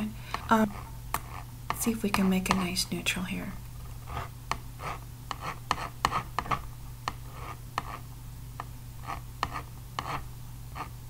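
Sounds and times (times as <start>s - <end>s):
palette knife scraping paint: 0.3s - 2.7s, 4.0s - 8.0s, 9.0s - 10.9s.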